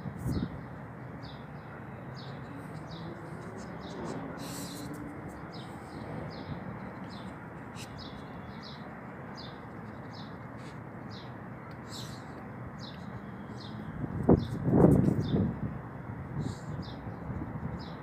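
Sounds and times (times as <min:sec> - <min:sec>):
small bird chirping: 0:02.2 - 0:15.5.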